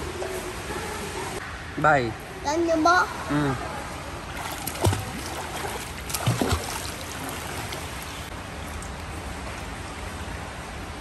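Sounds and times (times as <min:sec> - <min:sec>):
pool water splashing: 0:03.9 - 0:10.8.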